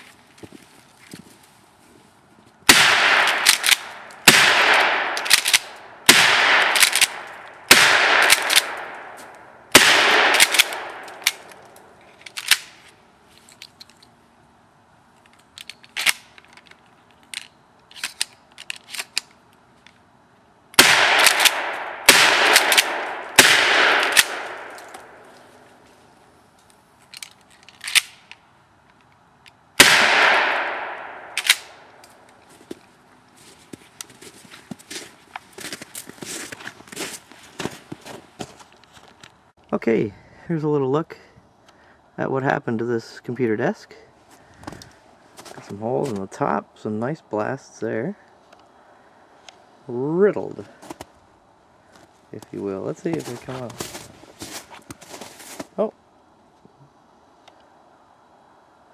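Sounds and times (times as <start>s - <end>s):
shotgun blasts: 2.7s - 11.3s, 20.8s - 25.2s, 29.8s - 31.9s
shotgun clicks and clacks: 3.0s - 5.8s, 6.4s - 9.0s, 9.9s - 11.6s, 20.8s - 23.1s, 31.4s - 31.8s.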